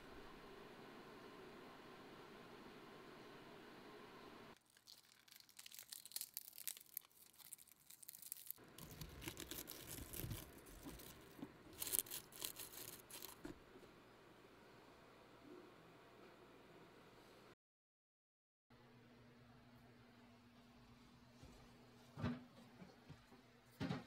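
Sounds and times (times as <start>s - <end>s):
dry leaf litter crackling: 4.6s - 13.4s.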